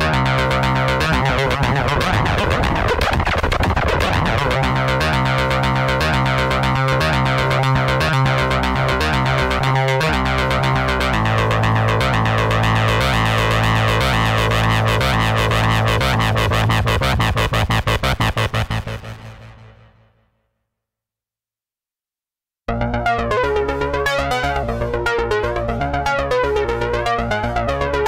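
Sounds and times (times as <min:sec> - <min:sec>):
synthesizer repeating notes: 0:00.0 - 0:19.9
sustained synth bass note: 0:00.0 - 0:20.2.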